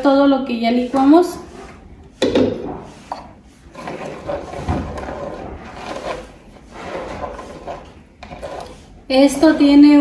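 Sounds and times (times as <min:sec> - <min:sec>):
spoon scraping sauce through colander: 0:02.8 - 0:10.0.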